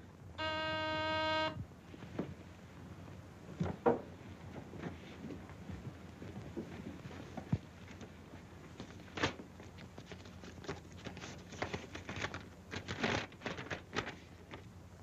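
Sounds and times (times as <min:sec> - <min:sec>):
film soundtrack hum and hiss: 0:00.0 - 0:15.0
paper rustling: 0:08.7 - 0:14.8.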